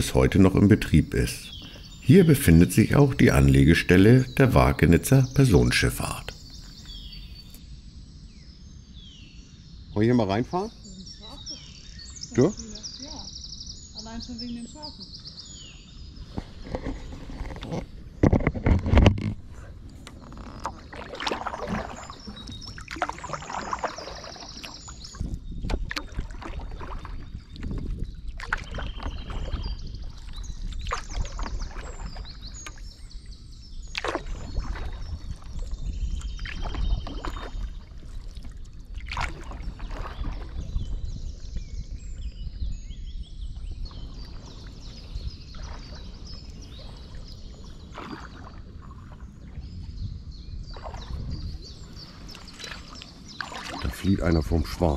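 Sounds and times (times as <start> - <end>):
paddle splashing in water: 16.3 - 42.5, 43.5 - 54.9.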